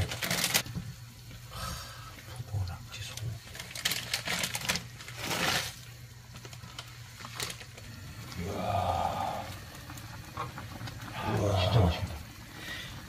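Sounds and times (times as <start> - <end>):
dry noodles crackling and snapping: 0.0 - 0.6, 3.1 - 8.8
plastic packet crinkling: 0.0 - 0.6, 3.1 - 7.9
steady low hum: 0.0 - 13.0.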